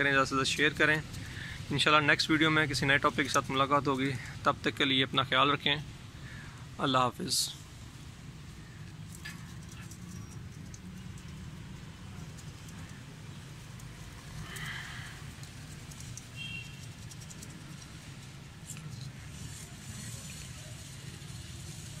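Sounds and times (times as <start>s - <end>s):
hooves shifting on concrete: 8.8s - 19.3s.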